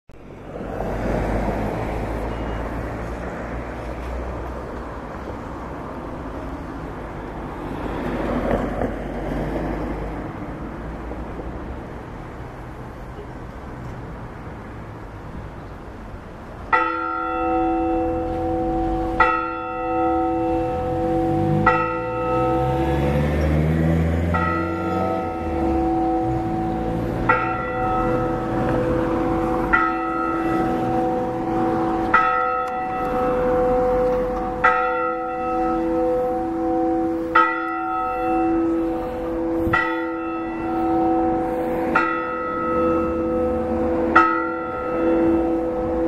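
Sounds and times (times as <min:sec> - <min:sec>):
hum of deeper bells: 0:16.7 - 0:46.0.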